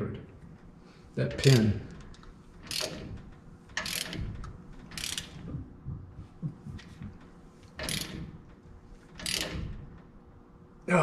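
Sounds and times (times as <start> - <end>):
ratchet wrench clicking: 1.4 - 3.2, 3.8 - 5.5, 7.8 - 8.4, 9.2 - 9.8.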